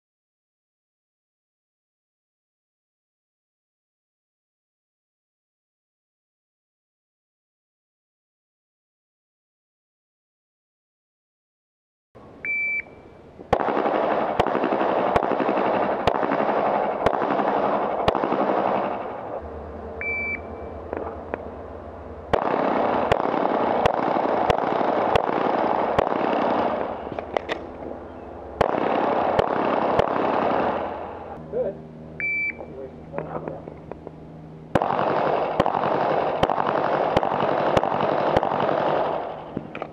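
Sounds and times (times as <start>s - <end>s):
high electronic timer beep: 12.5s - 13.0s, 20.0s - 20.7s, 32.2s - 32.7s
loud steady rushing noise: 13.1s - 39.9s
pistol shots: 13.5s - 19.4s, 22.3s - 28.0s, 28.6s - 31.4s, 34.7s - 39.9s.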